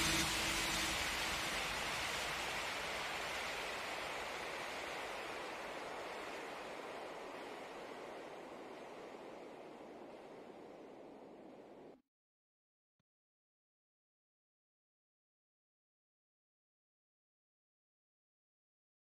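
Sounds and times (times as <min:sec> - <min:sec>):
creek water rushing: 0:00.0 - 0:11.8.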